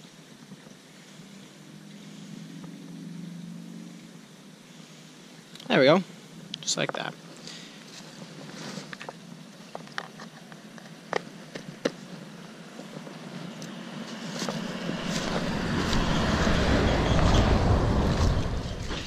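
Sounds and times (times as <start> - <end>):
vehicle driving past: 12.6 - 19.0.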